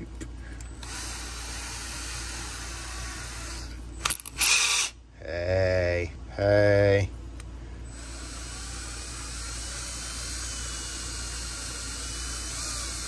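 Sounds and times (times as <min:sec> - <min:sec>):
drill motor humming: 0:00.6 - 0:05.0, 0:07.9 - 0:13.0
drill chuck ratcheting: 0:00.8 - 0:04.9, 0:08.0 - 0:13.0.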